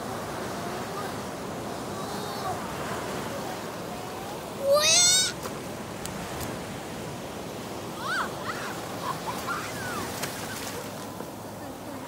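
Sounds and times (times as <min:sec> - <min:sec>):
child shrieking: 0:04.6 - 0:05.4, 0:08.0 - 0:08.8
surf breaking: 0:08.0 - 0:11.4.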